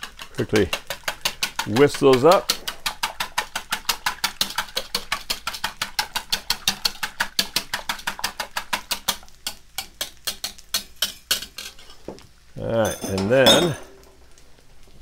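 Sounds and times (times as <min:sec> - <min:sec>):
wire whisk beating eggs in bowl: 0:00.0 - 0:11.8.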